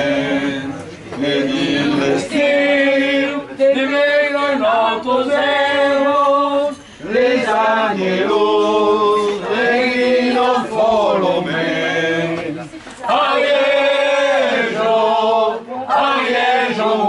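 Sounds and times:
group singing unaccompanied: 0.0s - 17.0s.

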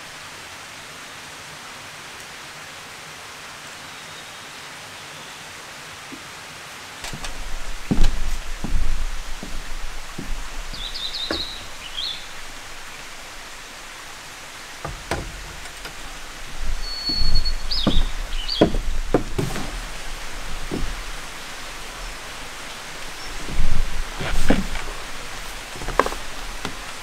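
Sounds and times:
outdoor background hiss: 0.0s - 27.0s
birds chirping: 7.0s - 27.0s.

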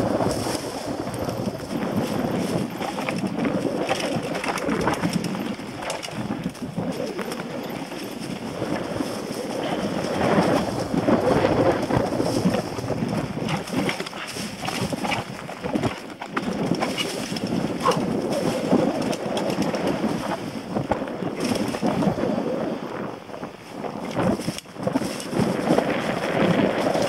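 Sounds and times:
tyres crunching over dry leaves: 0.0s - 20.5s
bike rattling over bumps: 0.0s - 27.0s.

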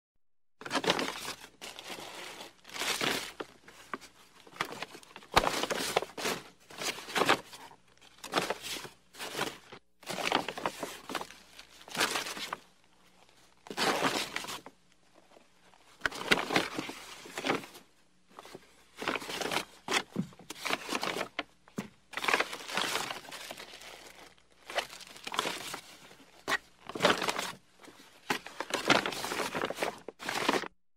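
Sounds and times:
shopping bags rustling: 8.2s - 12.6s, 18.4s - 30.7s.

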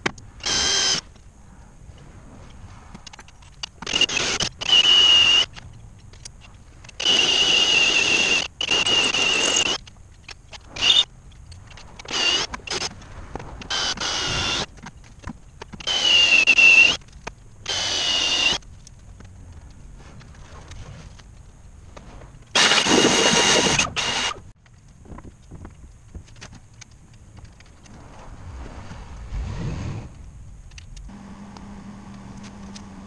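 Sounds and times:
cordless power tool whining: 0.4s - 1.0s, 13.7s - 14.7s, 15.8s - 17.0s, 17.7s - 18.6s, 22.6s - 24.4s, 31.1s - 33.0s.

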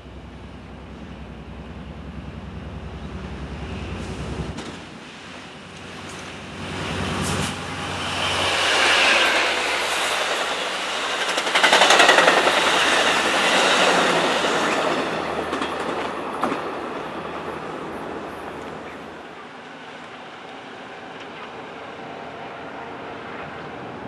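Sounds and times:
diesel locomotive passing: 0.0s - 24.0s
train wheels clattering on rails: 4.1s - 5.0s, 5.6s - 19.4s.

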